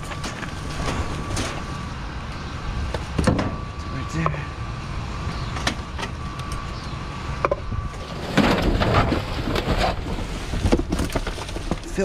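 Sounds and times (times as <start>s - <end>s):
cardboard boxes knocking and scraping: 8.2s - 12.0s.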